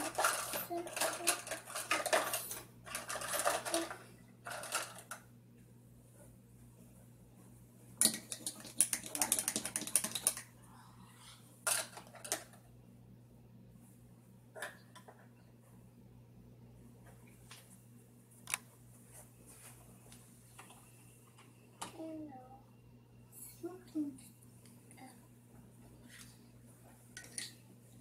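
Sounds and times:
plastic dishes clattering: 0:00.0 - 0:05.2.

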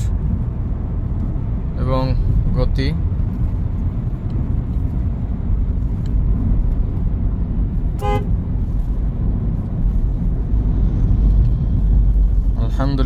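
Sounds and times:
road and drivetrain rumble: 0:00.0 - 0:13.0
car horn toot: 0:08.0 - 0:08.4.

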